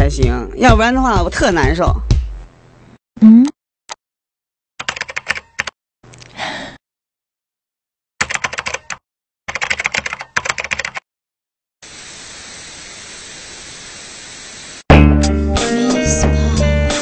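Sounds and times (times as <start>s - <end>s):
laptop keyboard typing: 4.8s - 5.7s, 8.2s - 11.0s.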